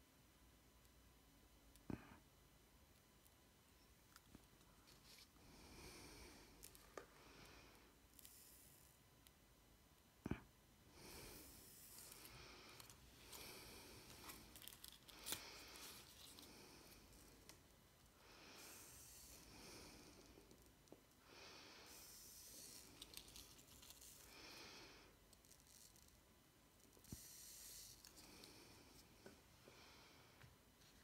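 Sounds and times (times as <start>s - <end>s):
faint breathing: 5.0s - 8.8s, 10.2s - 25.2s, 27.1s - 31.0s.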